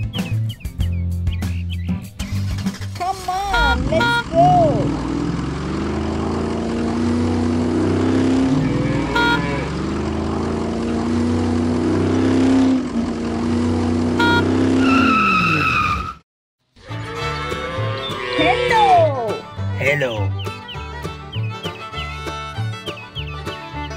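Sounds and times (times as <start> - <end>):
truck engine revving: 2.2 - 16.2, 16.8 - 23.9
short beep: 9.1 - 9.6, 14.2 - 14.6.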